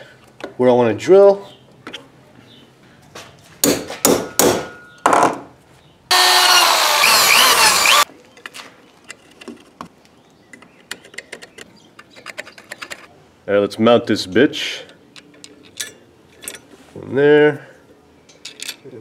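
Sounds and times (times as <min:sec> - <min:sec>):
hand drill cutting metal: 0:06.1 - 0:08.1
clicks and knocks of handled parts: 0:08.3 - 0:13.1, 0:14.8 - 0:16.7, 0:18.3 - 0:19.0.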